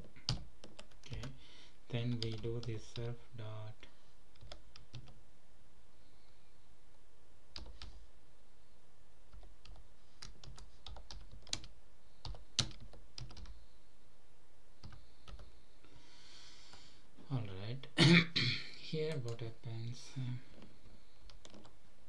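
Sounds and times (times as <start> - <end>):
typing on computer keyboard: 0.3 - 1.4, 4.4 - 5.2, 9.3 - 13.5, 21.3 - 21.7.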